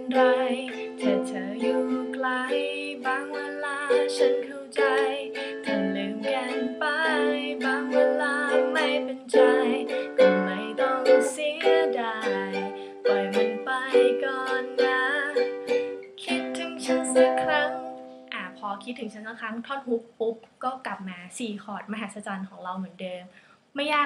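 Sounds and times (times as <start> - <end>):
ukulele strumming: 0.0 - 18.2
woman singing: 0.0 - 19.2.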